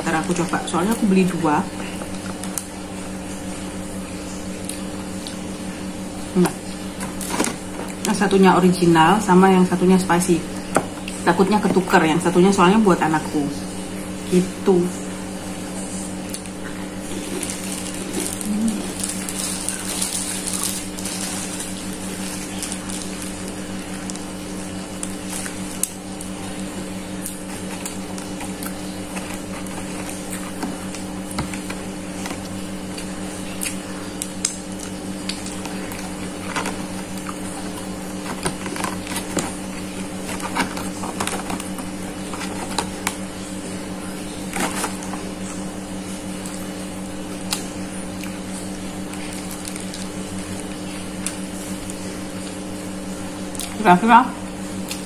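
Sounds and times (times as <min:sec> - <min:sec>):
steady low hum: 0:00.0 - 0:55.0
chewing and crunching: 0:16.2 - 0:43.4, 0:44.0 - 0:45.7, 0:46.4 - 0:52.0
paper wrapper rustling: 0:17.0 - 0:25.8, 0:27.4 - 0:32.5, 0:35.4 - 0:43.2, 0:44.4 - 0:45.6, 0:49.1 - 0:50.7.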